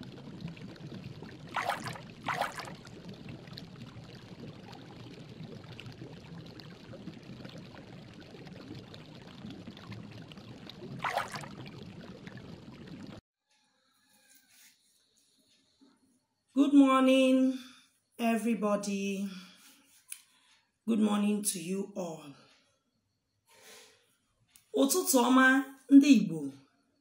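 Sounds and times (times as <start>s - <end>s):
loud water bursts: 0.0s - 13.2s
stream running over rocks: 0.0s - 13.2s.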